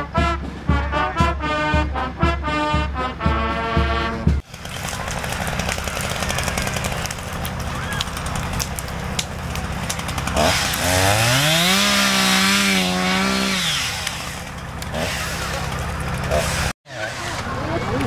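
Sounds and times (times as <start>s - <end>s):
chainsaw idling and revving: 4.4s - 18.0s.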